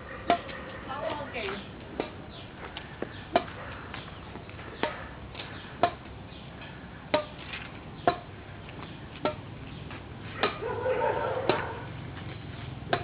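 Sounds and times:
rackets hitting shuttlecock: 0.2 - 0.5, 1.9 - 2.3, 3.1 - 3.6, 4.7 - 5.1, 5.8 - 6.1, 7.1 - 7.4, 8.0 - 8.3, 9.2 - 10.7, 11.4 - 11.7, 12.3 - 13.0.

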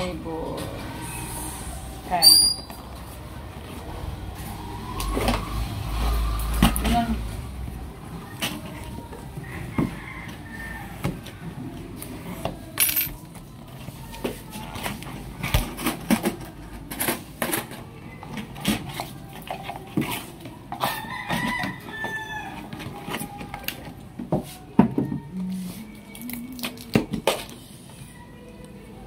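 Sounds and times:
rooster crowing: 9.4 - 11.4, 20.8 - 23.0.

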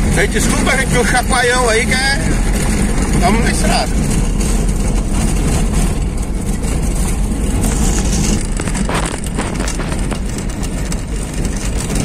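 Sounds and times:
car engine running: 0.0 - 12.0
tyres on dirt road: 0.0 - 12.0
car body knocking over bumps: 2.4 - 12.0.

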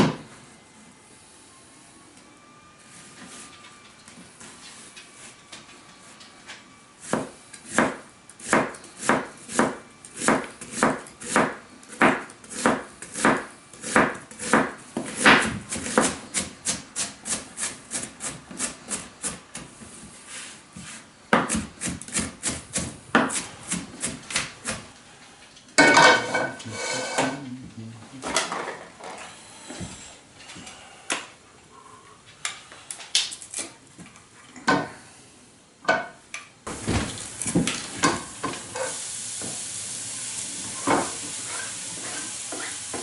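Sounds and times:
knife chopping on plastic board: 7.1 - 17.1.

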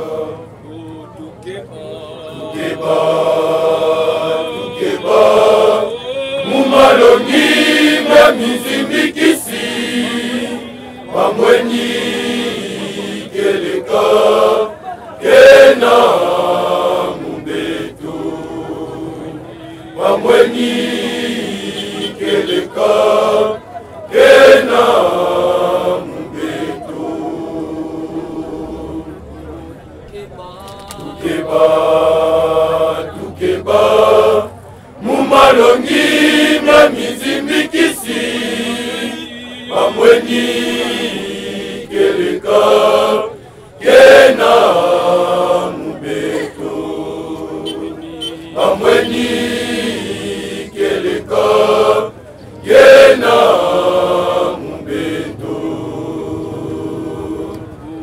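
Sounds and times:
men chanting a hymn: 0.0 - 58.0.

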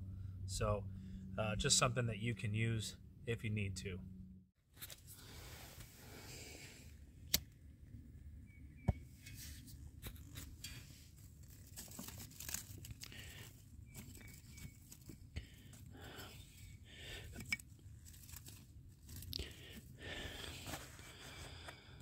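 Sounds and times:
paper rustling and crackling: 10.0 - 15.9, 17.6 - 19.8.

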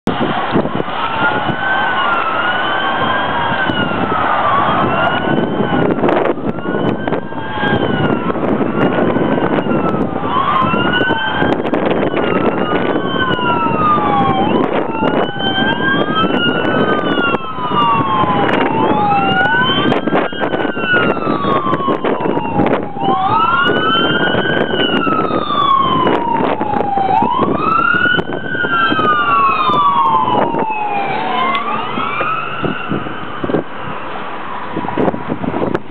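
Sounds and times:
road traffic noise: 0.0 - 35.9
ambulance siren wailing: 0.1 - 35.8.

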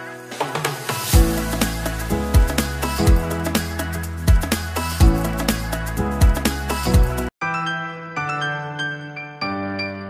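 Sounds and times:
deep bass and drum beat: 1.1 - 7.3.

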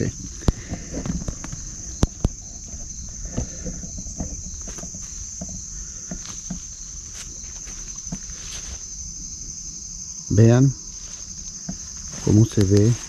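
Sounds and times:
insect chorus chirring: 0.0 - 13.0
soft knocks and rustles: 0.4 - 8.9.

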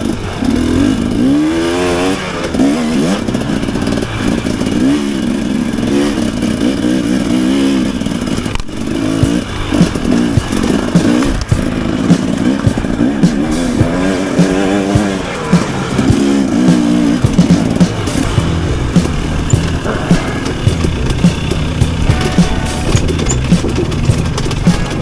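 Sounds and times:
dirt bike engine revving: 0.0 - 25.0
sharp knocks and clatter: 8.2 - 25.0.

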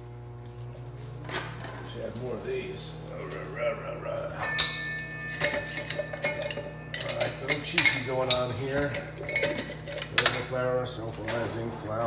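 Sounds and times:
metal bowl ringing: 3.3 - 10.5
utensils clinking against metal bowl: 4.3 - 10.6.

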